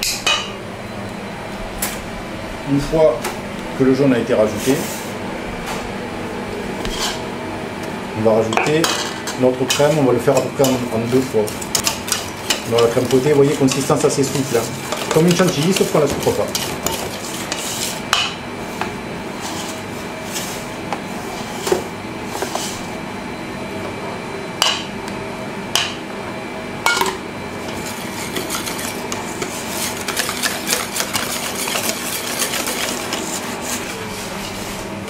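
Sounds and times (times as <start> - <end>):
whisk scraping metal bowl: 9.6 - 18.0, 27.6 - 34.9
whisk knocking against bowl: 11.5 - 17.6, 27.7 - 33.9.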